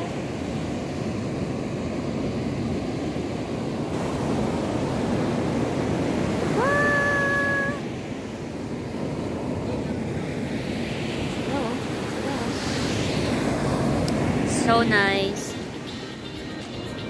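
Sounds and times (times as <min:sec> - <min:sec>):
ocean surf breaking on beach: 0:00.0 - 0:17.0
pitched call: 0:06.6 - 0:07.8.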